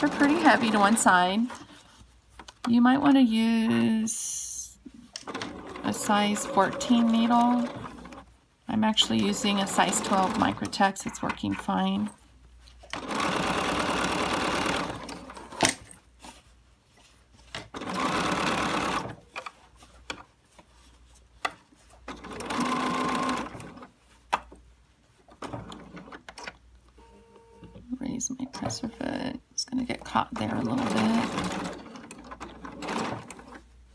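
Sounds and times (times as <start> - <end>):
sewing machine stitching: 0.0 - 1.6, 5.2 - 8.2, 9.0 - 11.7, 12.9 - 15.6, 17.7 - 19.2, 22.1 - 23.9, 30.1 - 33.6.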